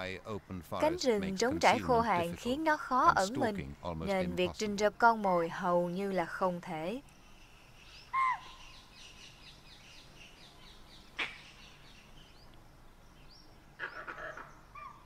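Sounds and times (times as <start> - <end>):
harsh chattering bird calls: 7.2 - 12.5, 13.1 - 15.0
sharp loud bird call: 8.0 - 8.8.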